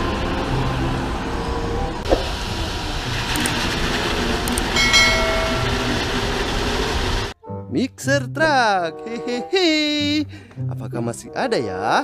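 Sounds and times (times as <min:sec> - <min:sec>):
diesel engine rumble: 0:00.0 - 0:07.4.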